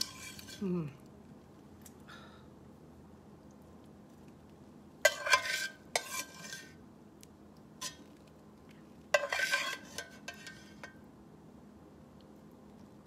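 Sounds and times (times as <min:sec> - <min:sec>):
metal spatula scraping a pan: 0:00.0 - 0:00.6, 0:05.0 - 0:06.8, 0:07.8 - 0:08.1, 0:09.1 - 0:11.0.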